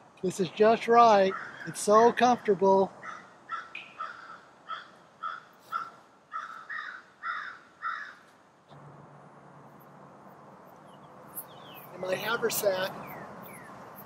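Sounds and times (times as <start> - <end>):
faint outdoor hum and hiss: 0.0 - 14.0
crow cawing: 1.2 - 1.8, 3.0 - 8.3.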